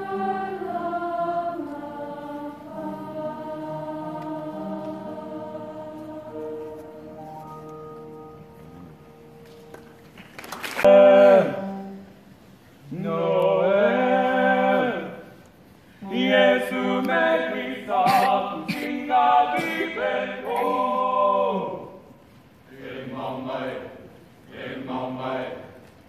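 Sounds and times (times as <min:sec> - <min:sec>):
choir singing: 0:00.0 - 0:09.4, 0:12.8 - 0:15.3, 0:16.0 - 0:22.1, 0:22.7 - 0:25.8.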